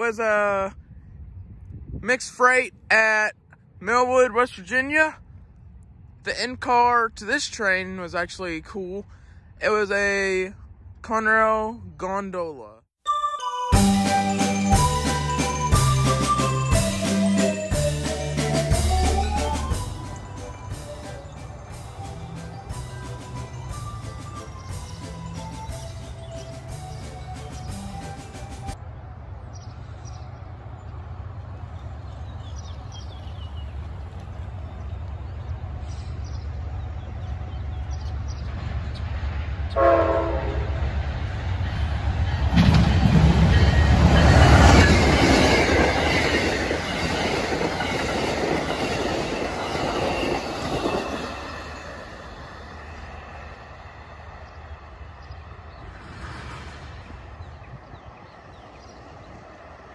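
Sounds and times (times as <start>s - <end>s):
diesel train passing: 13.1s - 59.9s
train horn blast: 39.7s - 40.8s.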